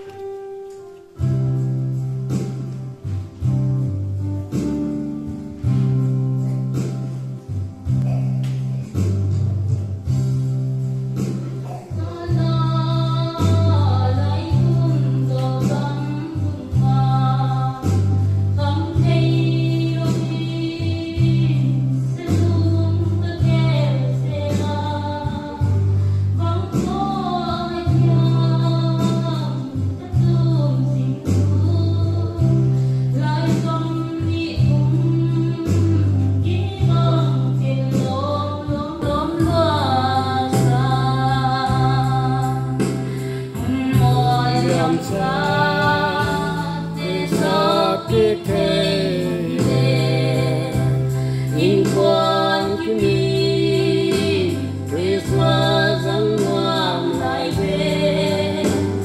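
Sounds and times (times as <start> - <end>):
gospel song with instruments: 0.0 - 59.0
rhythmic bass line: 1.2 - 28.4, 34.3 - 59.0
person singing: 11.4 - 18.0, 38.6 - 59.0.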